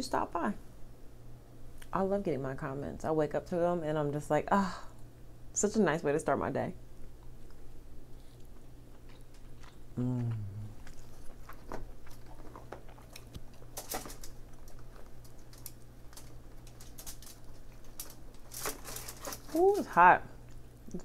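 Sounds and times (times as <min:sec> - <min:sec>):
person chewing: 0:07.1 - 0:13.8
person humming mm: 0:09.9 - 0:10.9
crab shell cracking: 0:10.8 - 0:19.5.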